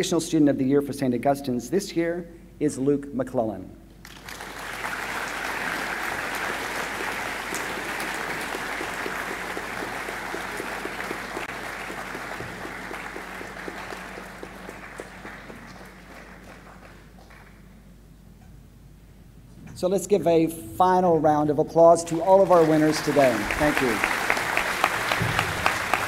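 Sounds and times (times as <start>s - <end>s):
audience applauding: 4.0s - 17.7s, 22.1s - 26.0s
single claps: 4.0s - 17.7s, 22.9s - 26.0s.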